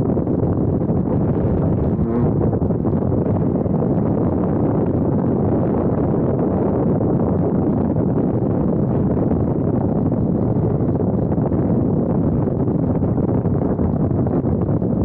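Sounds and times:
wind buffeting microphone: 0:00.0 - 0:15.0
engine running: 0:00.1 - 0:07.9.

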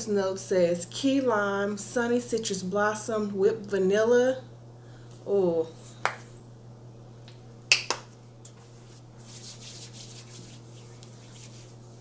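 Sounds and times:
hands rubbing lotion: 0:08.7 - 0:12.0.

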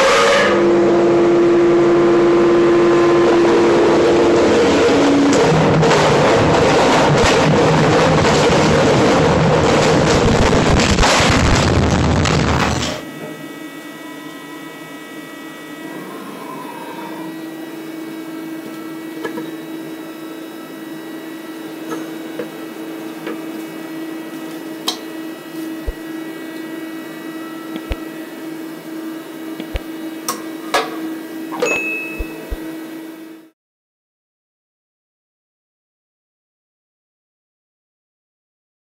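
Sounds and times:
milling machine humming: 0:00.6 - 0:33.5
wire clicks and taps: 0:29.6 - 0:30.4.

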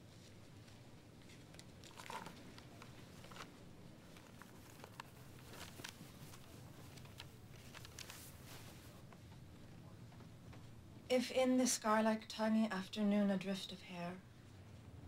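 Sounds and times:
paper pages rustling: 0:00.0 - 0:09.1.

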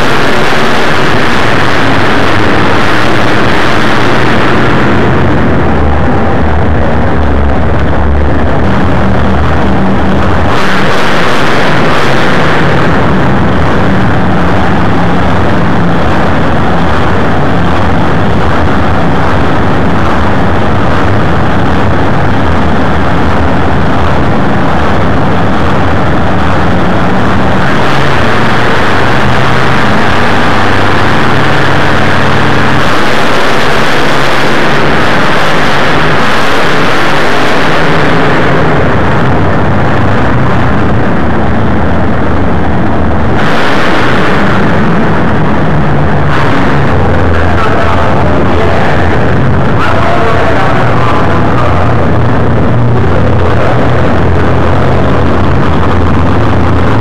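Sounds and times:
monster truck engines revving loud: 0:00.0 - 0:57.0.

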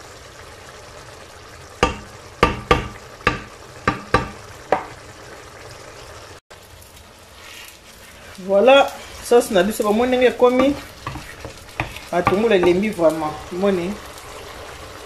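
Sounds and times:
sauce bubbling in a frying pan: 0:00.0 - 0:15.0
wooden spoon knocking on a pan: 0:01.8 - 0:05.0, 0:10.6 - 0:12.9.

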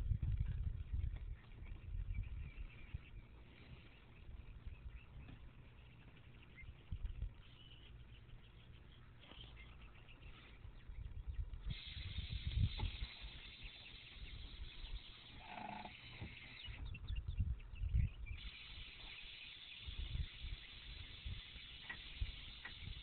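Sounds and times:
wind buffeting microphone: 0:00.0 - 0:08.8, 0:09.8 - 0:23.0
air suspension high hiss: 0:11.6 - 0:14.9.

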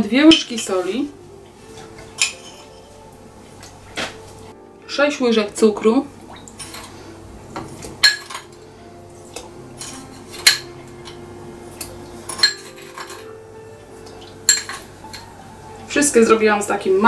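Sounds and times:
metal spoon clinking on glass bowl: 0:02.2 - 0:02.9, 0:08.0 - 0:08.6, 0:12.3 - 0:13.3, 0:14.5 - 0:15.3.

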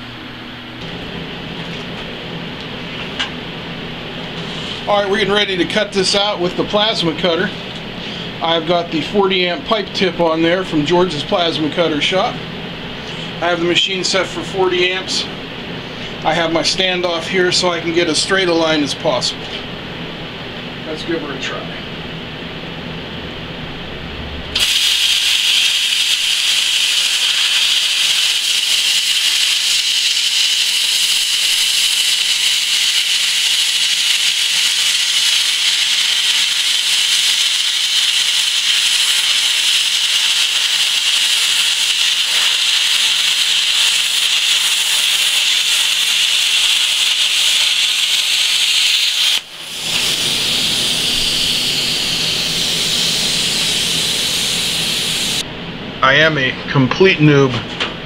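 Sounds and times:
plasma cutter hissing: 0:24.6 - 0:55.4.

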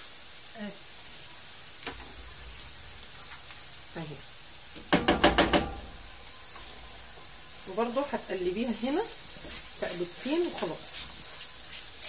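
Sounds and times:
onions sizzling in a frying pan: 0:00.0 - 0:12.0
spoon tapping against pan: 0:04.9 - 0:05.8.

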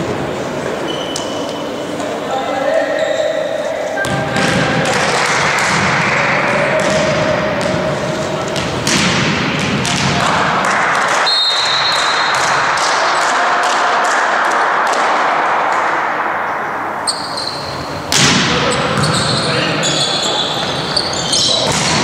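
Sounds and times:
voices echoing in a hall: 0:00.0 - 0:22.0
ball bouncing: 0:06.7 - 0:11.3, 0:17.6 - 0:19.4, 0:20.6 - 0:22.0
referee's whistle blast: 0:11.2 - 0:12.4.

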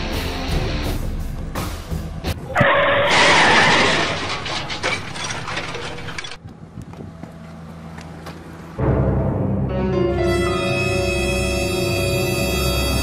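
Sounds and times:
tyres screeching: 0:02.5 - 0:06.4.

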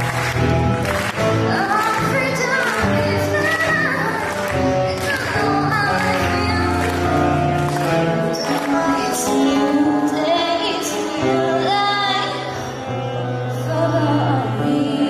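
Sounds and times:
acoustic guitar: 0:00.0 - 0:15.0
woman singing: 0:01.4 - 0:07.4, 0:08.2 - 0:12.8, 0:13.4 - 0:15.0.

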